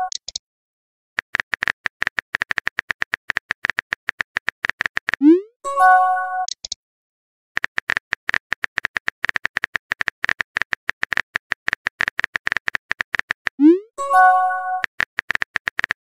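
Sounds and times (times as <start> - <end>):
phone keyboard typing clicks: 0.0 - 0.4, 1.2 - 5.3, 6.4 - 6.8, 7.6 - 13.7, 14.5 - 16.0.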